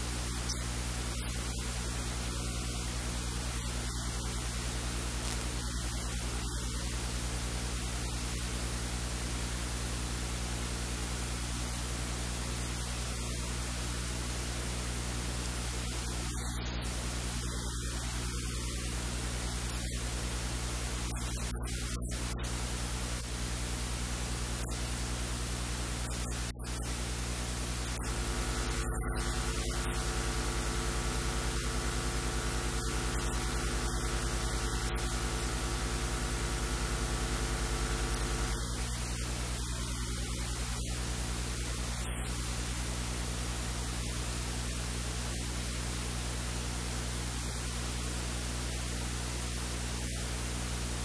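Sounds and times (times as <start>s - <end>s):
electrical mains hum: 0.0s - 44.6s
steady hiss: 15.5s - 42.5s.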